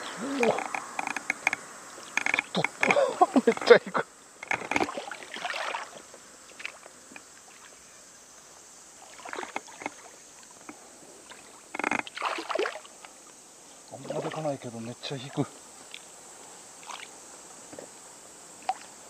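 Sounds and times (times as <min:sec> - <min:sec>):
fish splashing in water: 0:04.5 - 0:06.8, 0:11.3 - 0:13.0.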